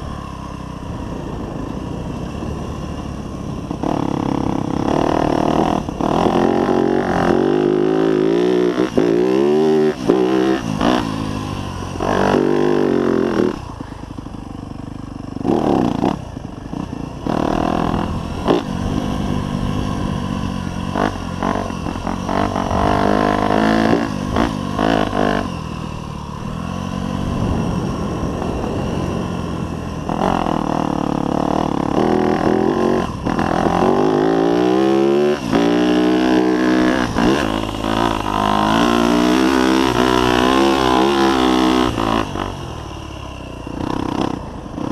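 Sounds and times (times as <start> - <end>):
dirt bike engine revving: 0.0 - 44.9.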